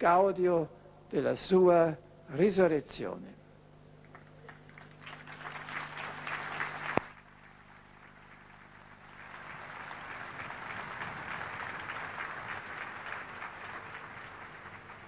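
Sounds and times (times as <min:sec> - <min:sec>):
crowd applauding: 0:04.1 - 0:15.0.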